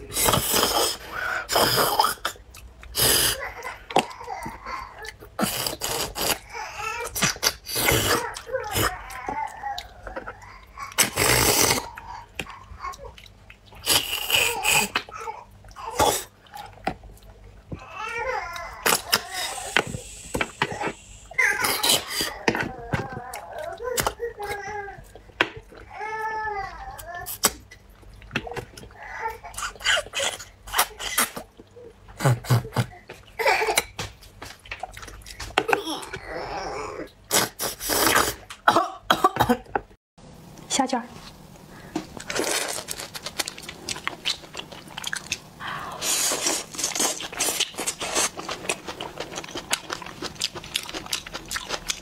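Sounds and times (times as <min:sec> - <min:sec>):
slurping and sucking on food: 0:00.0 - 0:03.4, 0:05.4 - 0:09.2, 0:11.0 - 0:12.0, 0:13.7 - 0:15.1, 0:18.6 - 0:22.4, 0:36.6 - 0:38.5, 0:42.2 - 0:52.0
mouth sucking and slurping food: 0:05.4 - 0:06.4, 0:37.2 - 0:38.5, 0:45.9 - 0:49.7.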